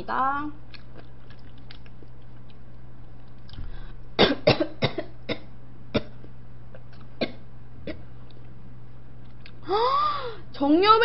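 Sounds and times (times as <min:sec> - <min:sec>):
woman coughing: 0:04.2 - 0:06.2.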